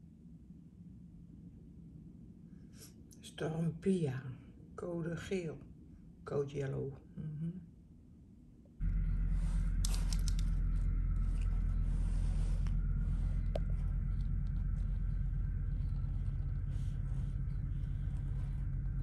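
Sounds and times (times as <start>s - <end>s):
boat diesel engine rumble: 8.8s - 19.0s.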